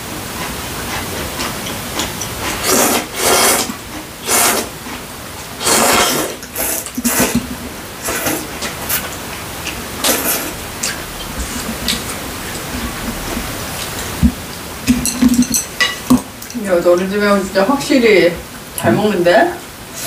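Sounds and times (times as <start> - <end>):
people slurping noodles: 0.9 - 5.0, 5.6 - 15.5.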